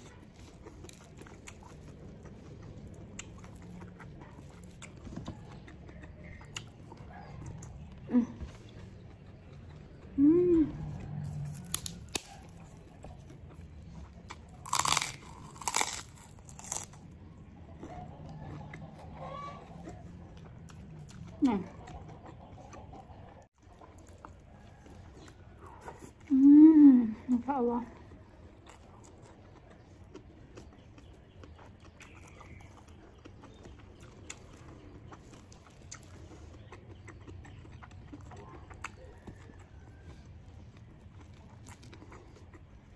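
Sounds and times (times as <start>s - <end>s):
person chewing food: 0.0s - 26.6s, 27.2s - 42.9s
cracker crunched between teeth: 11.2s - 12.8s, 14.3s - 17.1s.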